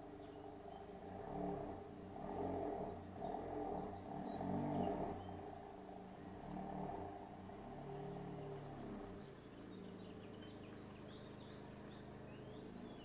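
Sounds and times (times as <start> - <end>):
birds chirping faintly: 0.0 - 13.0
car engine running at low speed: 0.0 - 13.0.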